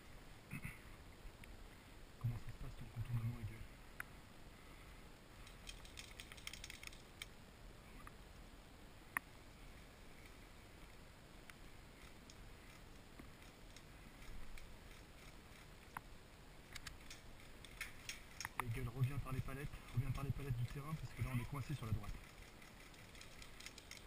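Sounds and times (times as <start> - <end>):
dry grass crackling: 5.3 - 7.4, 9.2 - 24.0
small clicks: 5.4 - 7.4, 11.5 - 16.1, 16.7 - 18.8, 19.8 - 24.0.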